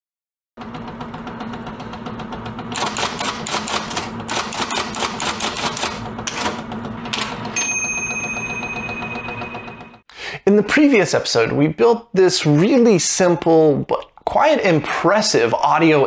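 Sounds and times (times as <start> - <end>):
typewriter keys clacking: 2.8 - 7.3.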